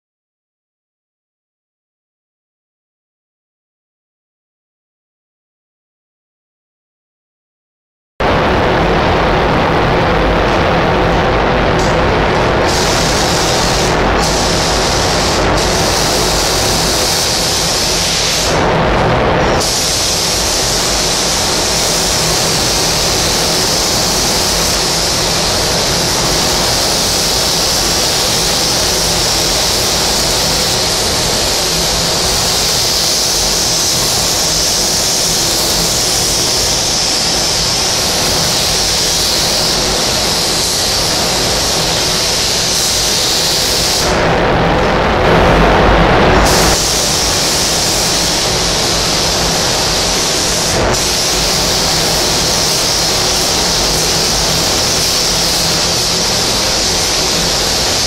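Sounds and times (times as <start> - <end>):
paint spray gun hissing: 11.8 - 18.7, 19.5 - 44.1, 46.4 - 58.0.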